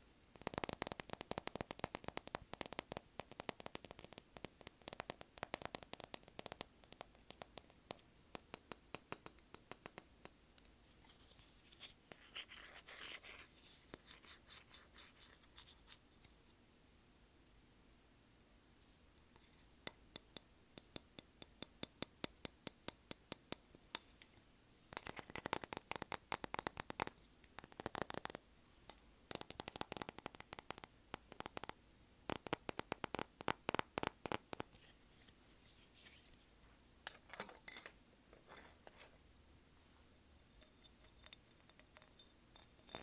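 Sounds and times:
fingers tapping on a surfboard: 0.4s - 10.1s, 29.3s - 34.7s.

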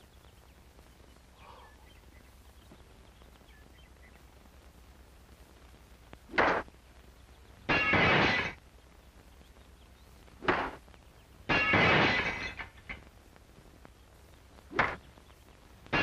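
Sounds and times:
sharp crack: 5.3s - 8.8s, 10.1s - 16.0s
window pane shattering: 7.7s - 8.6s, 11.5s - 12.8s.

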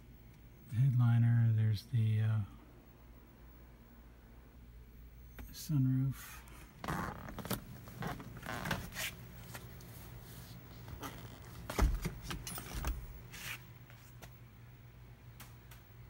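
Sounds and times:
steady low hum: 0.0s - 16.0s
phone rustling against clothing: 6.5s - 14.4s.

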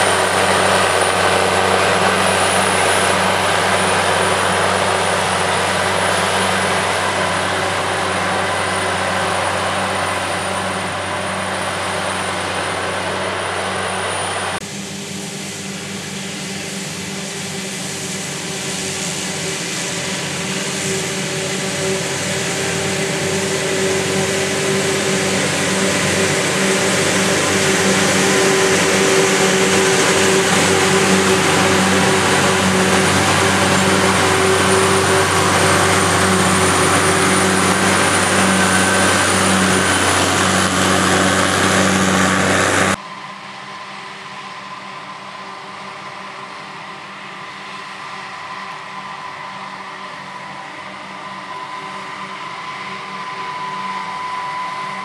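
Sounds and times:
forage harvester droning: 0.0s - 55.0s.

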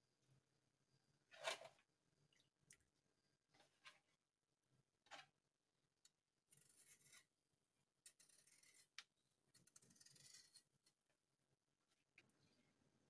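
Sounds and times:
peeler scraping potato: 6.5s - 7.3s, 8.1s - 10.7s.

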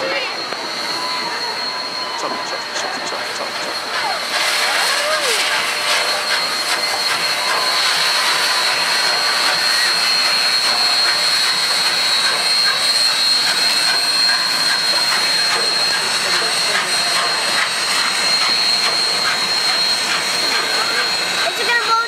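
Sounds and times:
steam locomotive hissing: 0.0s - 22.0s.

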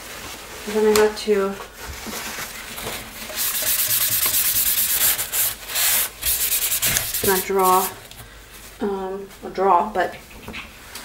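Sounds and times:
hand rubbing cardboard: 3.1s - 8.1s.

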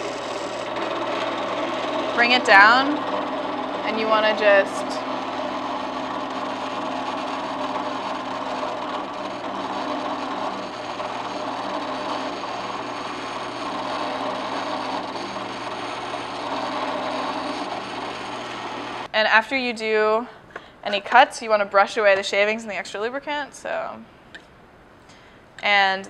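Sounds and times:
drill press cutting steel: 0.0s - 19.1s
motor hum: 0.0s - 19.1s.

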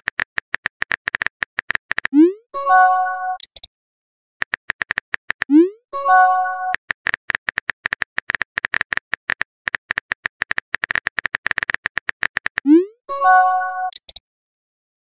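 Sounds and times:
multi-tone message chime: 2.6s - 3.4s, 6.0s - 6.8s, 13.1s - 14.0s
keyboard tap clicks: 4.4s - 5.5s, 7.0s - 12.7s.

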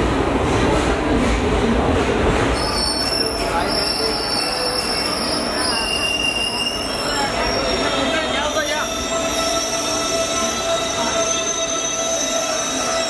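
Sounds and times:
train wheels squealing on rails: 2.4s - 13.0s.

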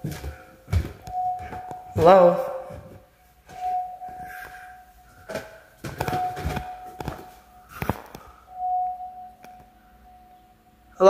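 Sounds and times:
footsteps: 0.0s - 8.4s
steady high tone: 1.0s - 11.0s.

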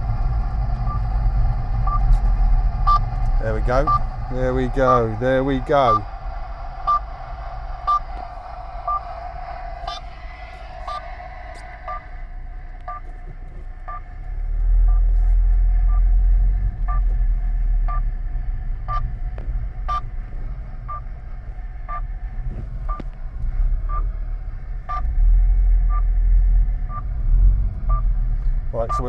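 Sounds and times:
car driving on rough lane: 0.0s - 29.0s
signal finder beeping: 0.8s - 1.1s, 1.8s - 2.2s, 2.8s - 6.1s, 6.8s - 12.2s, 12.8s - 13.1s, 13.8s - 16.2s, 18.9s - 19.1s, 19.9s - 20.1s, 21.8s - 22.1s, 24.9s - 25.1s, 27.9s - 28.1s.

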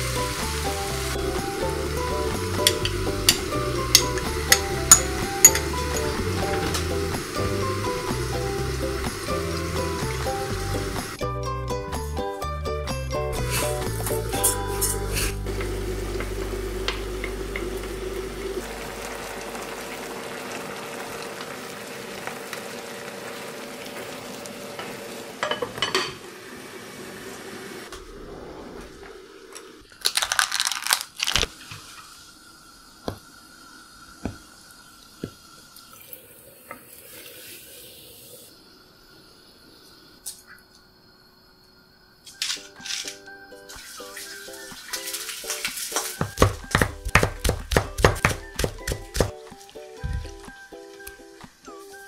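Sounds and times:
pot and utensils clattering: 2.2s - 7.1s, 13.4s - 16.3s, 24.8s - 26.2s
grain washed in water: 28.8s - 36.4s, 43.7s - 52.0s.

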